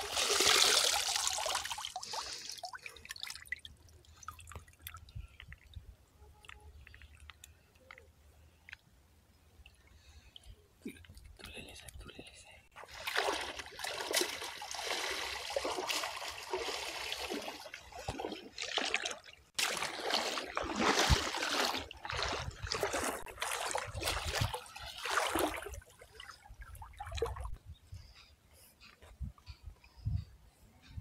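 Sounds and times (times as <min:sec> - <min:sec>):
water sloshing and splashing: 0:00.0 - 0:05.8, 0:12.8 - 0:27.6.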